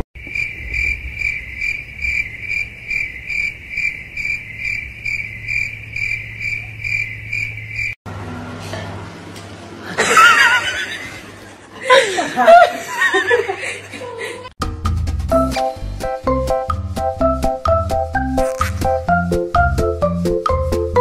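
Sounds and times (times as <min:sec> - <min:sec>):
high-pitched insect chirping: 0:00.2 - 0:08.0.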